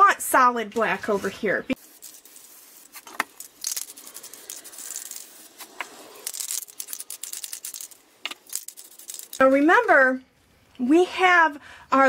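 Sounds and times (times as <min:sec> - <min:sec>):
spray paint hissing: 0:01.7 - 0:09.4
spray cans clinking and rattling: 0:01.8 - 0:09.4.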